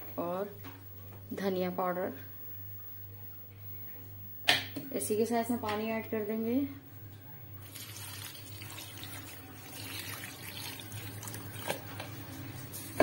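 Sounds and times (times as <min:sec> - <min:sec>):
water pouring into a pot: 0:07.6 - 0:12.1.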